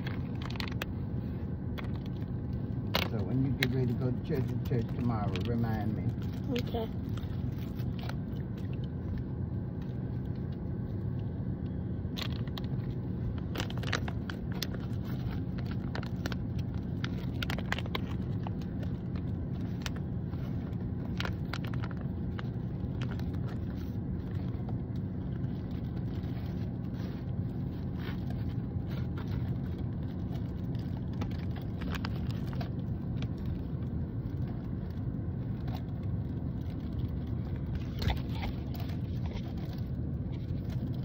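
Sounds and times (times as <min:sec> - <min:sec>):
car cabin rumble: 0:00.0 - 0:41.0
plastic pouch crinkling: 0:12.1 - 0:41.0.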